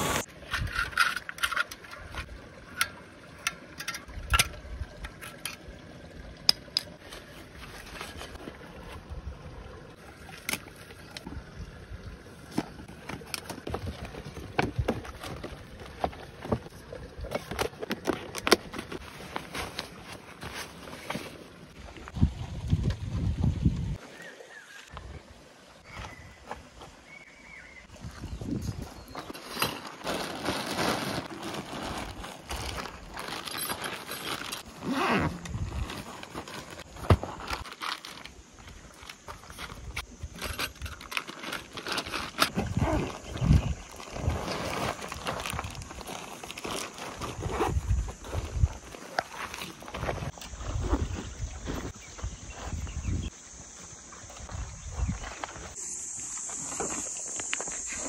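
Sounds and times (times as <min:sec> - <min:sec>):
metal tent stakes clinking: 0:00.1 - 0:05.7, 0:29.4 - 0:36.5
camping gear knocks and rustles: 0:00.2 - 0:05.6, 0:12.5 - 0:22.1, 0:28.5 - 0:52.8.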